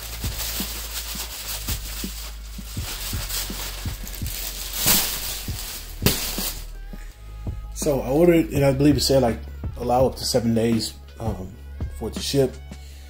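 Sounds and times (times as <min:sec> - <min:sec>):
plastic packaging crinkling: 0:00.0 - 0:06.8.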